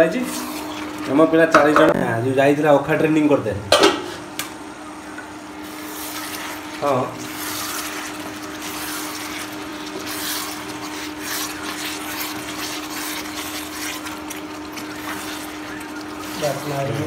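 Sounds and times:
curry sizzling in pan: 0:00.0 - 0:01.8, 0:05.4 - 0:17.0.

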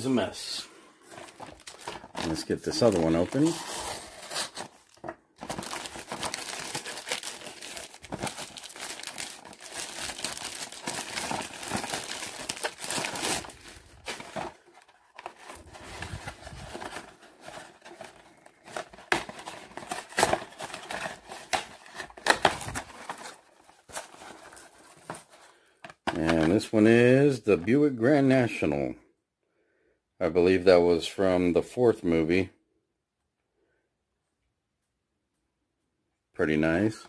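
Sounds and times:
packing crinkling and rustling: 0:01.0 - 0:26.6
cardboard tearing: 0:01.1 - 0:25.2.

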